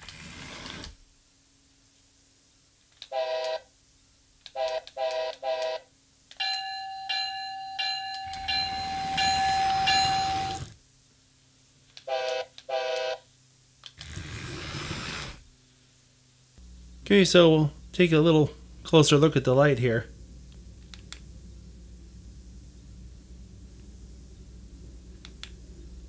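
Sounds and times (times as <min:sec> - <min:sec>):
faint steady hum: 0:00.0 - 0:26.0
toy train horn toots: 0:03.0 - 0:03.6, 0:04.4 - 0:05.9, 0:08.2 - 0:10.7, 0:12.0 - 0:13.2
ringing chime-like tone: 0:06.4 - 0:10.7.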